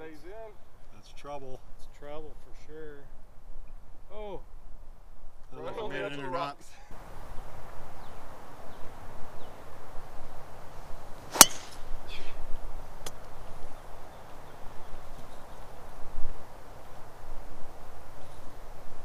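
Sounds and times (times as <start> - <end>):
golf club striking ball: 11.3 - 12.0.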